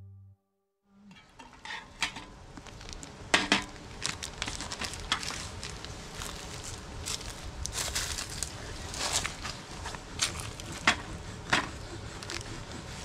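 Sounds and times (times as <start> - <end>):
plastic bag crinkling: 3.8 - 9.4.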